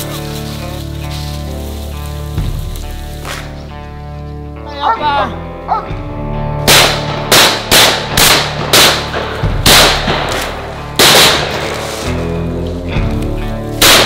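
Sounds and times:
shotgun shots with echo: 0:06.7 - 0:11.8, 0:13.8 - 0:14.0.

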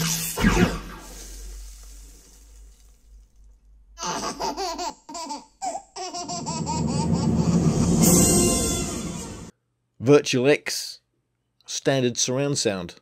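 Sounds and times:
baby laughing: 0:04.0 - 0:08.7
rushing soundtrack swell: 0:06.6 - 0:09.5.

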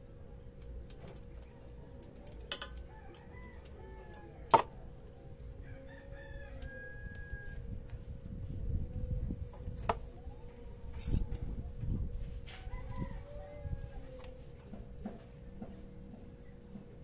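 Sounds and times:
rooster crowing: 0:02.9 - 0:04.6, 0:05.6 - 0:07.6, 0:12.5 - 0:14.4.

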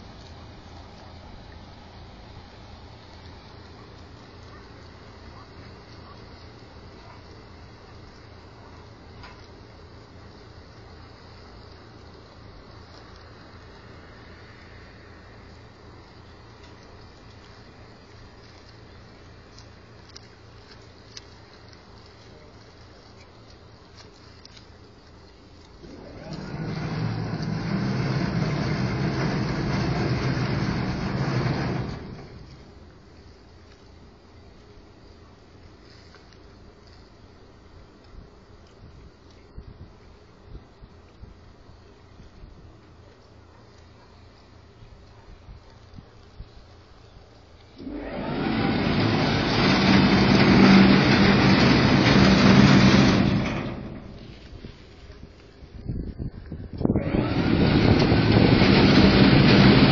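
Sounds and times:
engine humming: 0:00.0 - 0:59.9
engine passing close by: 0:47.8 - 0:54.5, 0:57.0 - 0:59.9.

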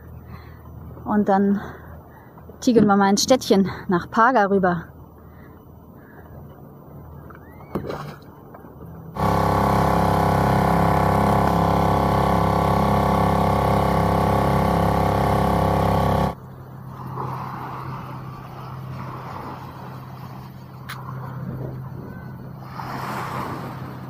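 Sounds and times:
small outboard motor running: 0:07.0 - 0:24.0.

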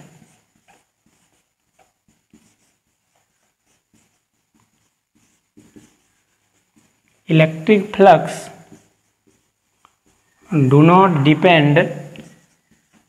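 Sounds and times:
faint taps of writing: 0:00.0 - 0:07.2, 0:08.6 - 0:10.4, 0:12.2 - 0:13.0.

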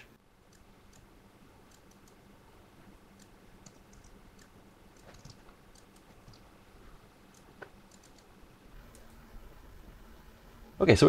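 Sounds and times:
low steady hum: 0:00.0 - 0:11.0
mouse and keyboard clicks: 0:01.7 - 0:02.2, 0:03.2 - 0:06.5, 0:07.3 - 0:09.2.

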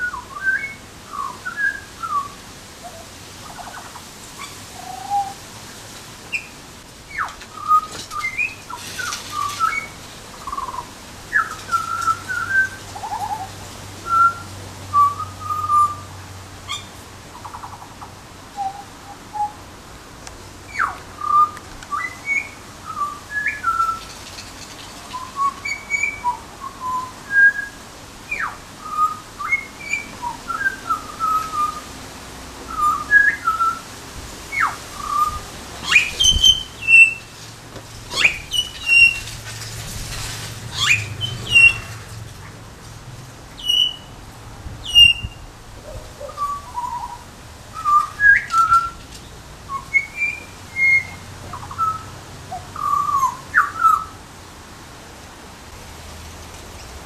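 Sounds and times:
bird singing whistled notes: 0:00.0 - 0:02.4, 0:04.4 - 0:05.4, 0:06.3 - 0:16.1, 0:20.7 - 0:31.8, 0:32.7 - 0:33.9, 0:34.5 - 0:37.3, 0:38.1 - 0:39.3, 0:40.7 - 0:42.0, 0:43.6 - 0:44.1, 0:44.8 - 0:54.2.

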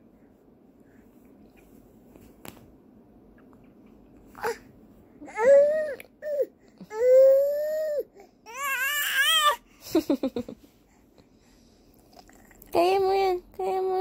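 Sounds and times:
baby crying: 0:05.2 - 0:09.6.

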